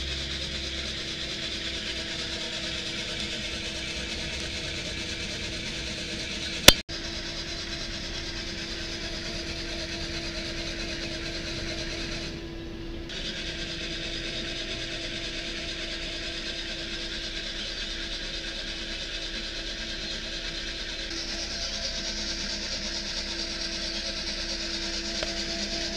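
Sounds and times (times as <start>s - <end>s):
coffee beans churning: 0.0s - 12.3s, 13.1s - 25.9s
heat gun fan hum: 0.0s - 25.9s.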